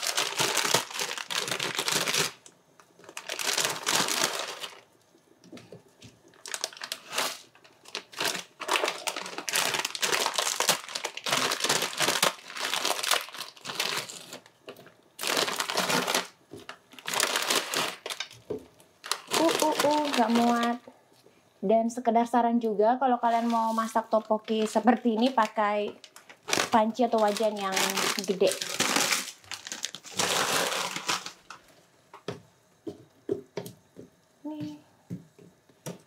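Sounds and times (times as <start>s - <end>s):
plastic packets crinkling: 0.0s - 4.9s, 6.2s - 20.9s, 23.3s - 31.7s.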